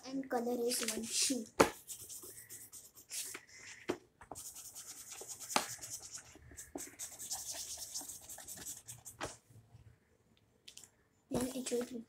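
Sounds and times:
colouring scratching on paper: 1.7s - 9.3s.

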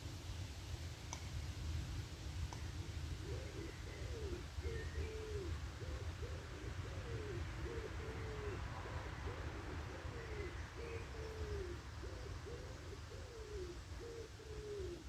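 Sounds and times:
bird calling: 3.2s - 15.0s.

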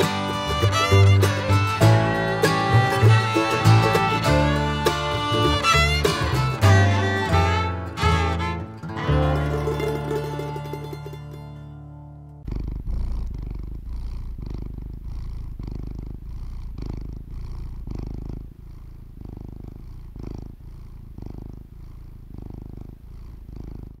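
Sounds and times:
cat purring: 0.0s - 7.4s, 12.4s - 24.0s
film accompaniment music: 0.0s - 12.2s.

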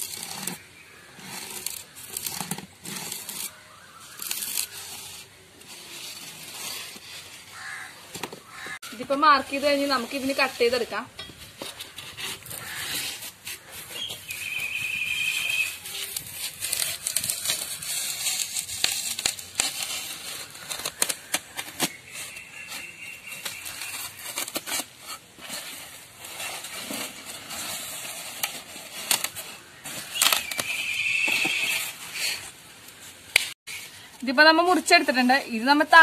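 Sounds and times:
knife cutting foam: 0.0s - 8.7s.

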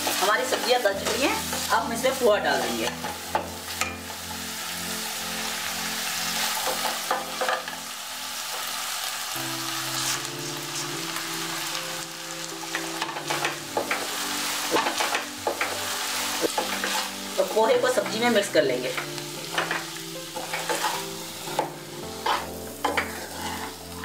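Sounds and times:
vegetables sizzling in oil: 0.0s - 24.0s
spatula scraping and tapping pan: 12.7s - 18.3s, 18.9s - 24.0s.

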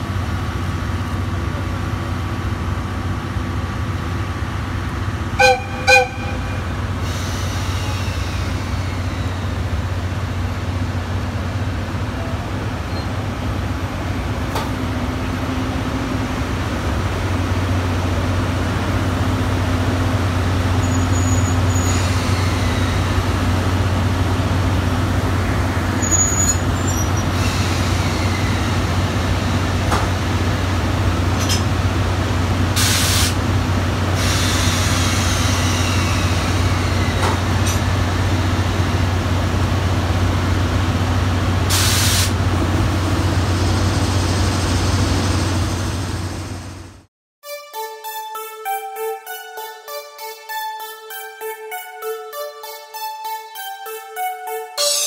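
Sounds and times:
electric locomotive humming: 0.0s - 47.1s
locomotive horn toots: 5.4s - 6.9s.

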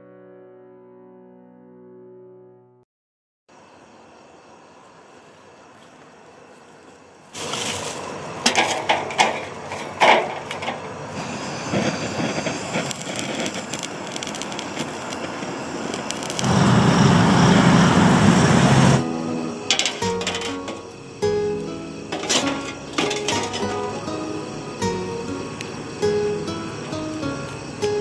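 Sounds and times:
charcoal cracking: 7.3s - 11.0s, 11.7s - 16.6s, 19.6s - 24.2s
gas torch flame hissing: 7.4s - 28.0s.

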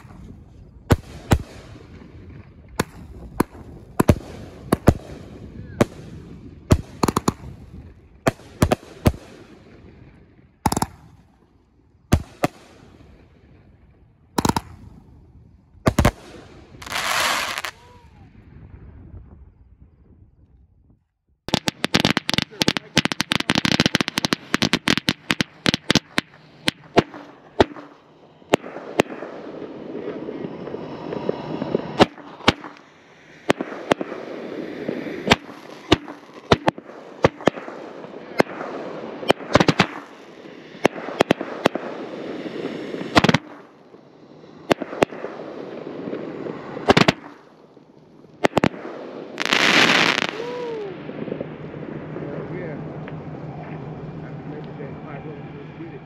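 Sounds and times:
fireworks cracking: 0.0s - 9.7s, 10.6s - 11.4s, 14.4s - 15.0s, 15.9s - 18.3s, 21.5s - 56.0s
rumbling wash of fireworks: 0.0s - 56.0s
fireworks hissing burst: 16.6s - 17.9s, 39.5s - 43.6s, 49.3s - 51.0s.

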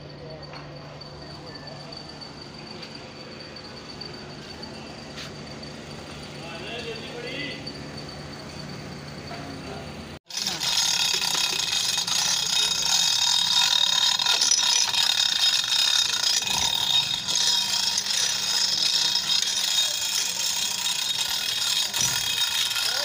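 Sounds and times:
mechanical ratcheting clatter: 10.2s - 23.0s.

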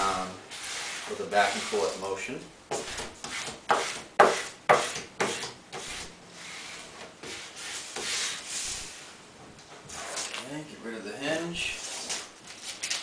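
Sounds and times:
vinyl rubbed on wooden board: 0.5s - 2.1s.

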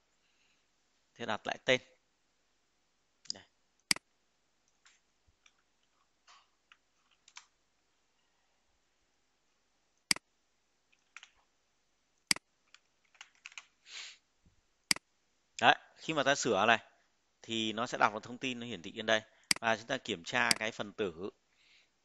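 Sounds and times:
computer keyboard typing: 11.0s - 11.4s, 12.3s - 13.7s.

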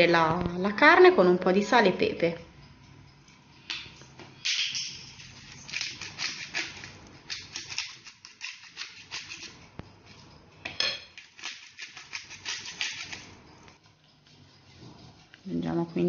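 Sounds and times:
pepper mill grinding: 4.8s - 9.7s, 11.1s - 13.6s.

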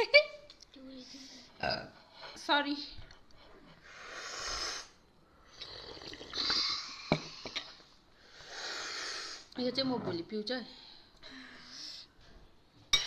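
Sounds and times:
person breathing heavily: 3.5s - 5.0s.

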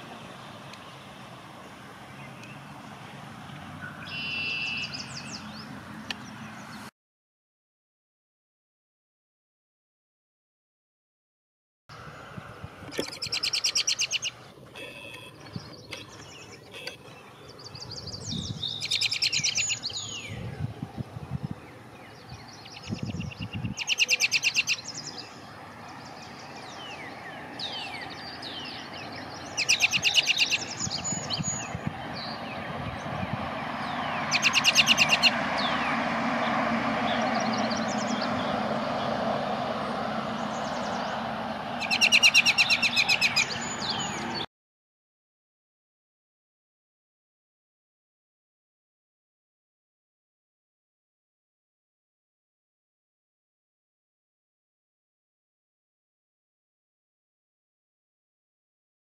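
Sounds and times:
robin singing: 0.0s - 6.9s, 11.9s - 39.1s, 40.3s - 44.5s
faint bird chirps: 3.8s - 5.5s, 21.6s - 32.4s.

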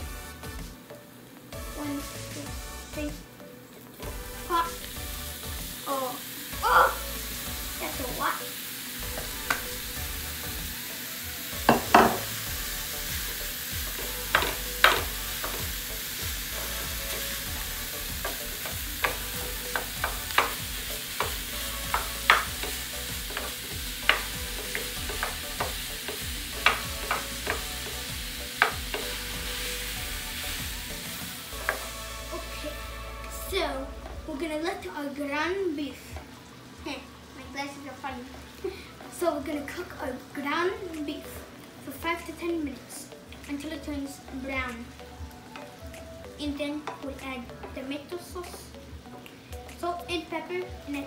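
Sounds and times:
meat sizzling in a frying pan: 3.8s - 51.0s
wooden spoon knocking against pan: 11.6s - 12.3s, 14.3s - 15.6s, 18.2s - 27.7s, 28.6s - 29.1s.

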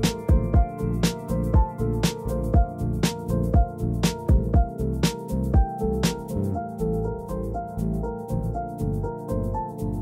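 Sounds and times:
music with steady drum beat: 0.0s - 6.4s.

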